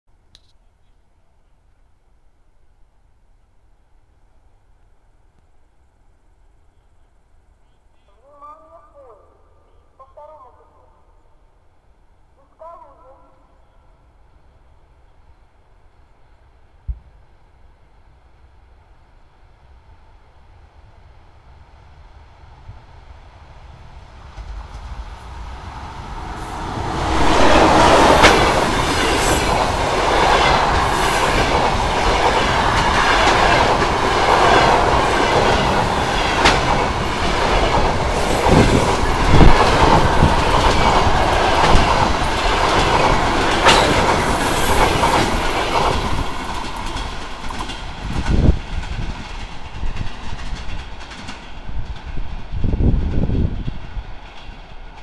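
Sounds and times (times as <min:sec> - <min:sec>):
train passing at speed: 0:13.6 - 0:55.0
train wheels knocking: 0:27.6 - 0:55.0.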